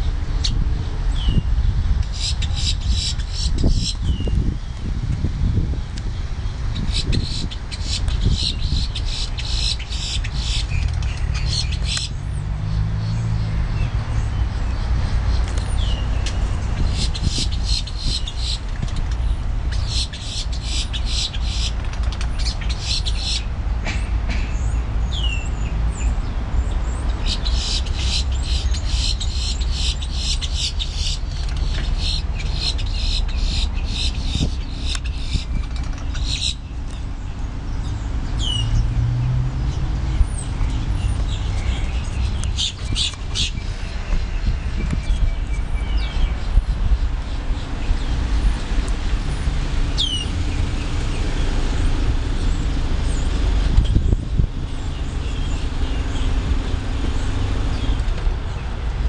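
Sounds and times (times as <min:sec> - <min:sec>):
grackles harsh clicking calls: 0:02.0 - 0:04.2, 0:06.7 - 0:12.1, 0:15.3 - 0:23.6, 0:27.1 - 0:37.0.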